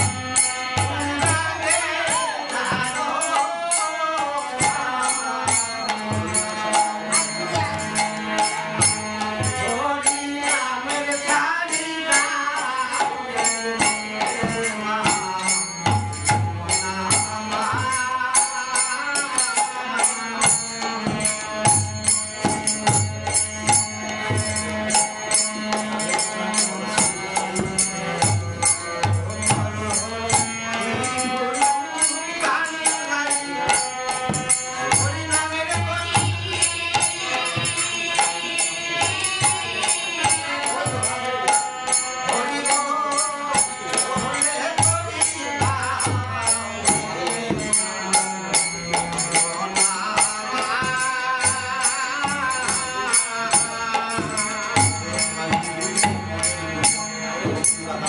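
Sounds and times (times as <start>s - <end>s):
harmonium: 0.0s - 58.0s.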